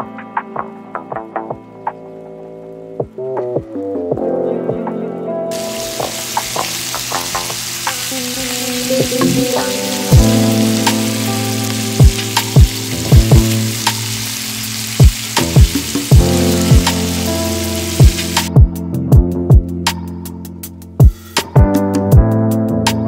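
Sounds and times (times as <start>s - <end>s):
vegetables sizzling in hot oil: 5.5s - 18.5s
background music with bass hits: 9.0s - 14.4s, 15.0s - 23.0s.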